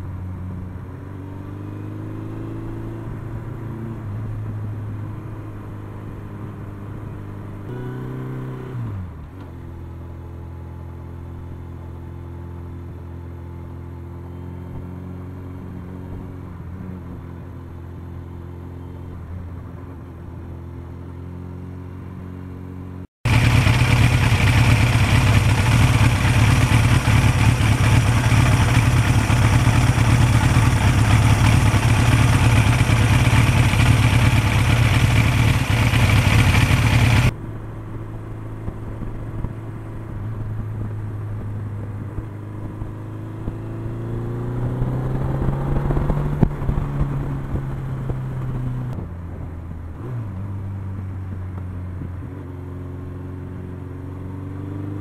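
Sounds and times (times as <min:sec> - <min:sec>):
motorcycle engine running: 0:23.2 - 0:50.0.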